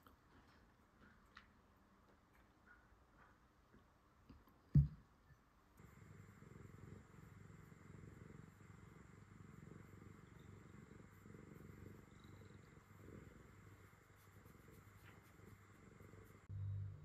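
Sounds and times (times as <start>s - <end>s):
cat purring: 5.8s - 17.0s.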